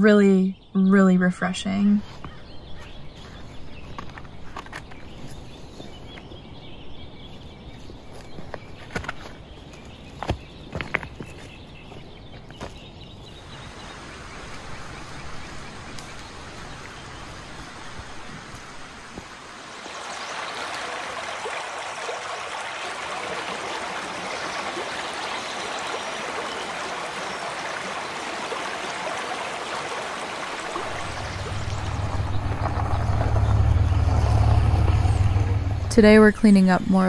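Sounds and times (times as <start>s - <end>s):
stream rushing over stones: 13.5s - 36.2s.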